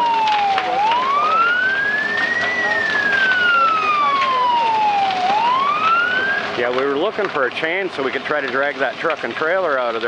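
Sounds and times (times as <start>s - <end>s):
emergency siren wailing: 0.0s - 6.8s.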